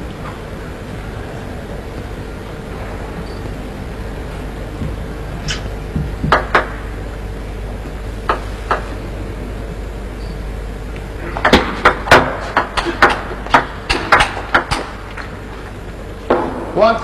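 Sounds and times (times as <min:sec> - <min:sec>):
low arena hum: 0:00.0 - 0:17.0
table tennis ball hitting bats and table: 0:05.5 - 0:06.8, 0:11.4 - 0:15.2.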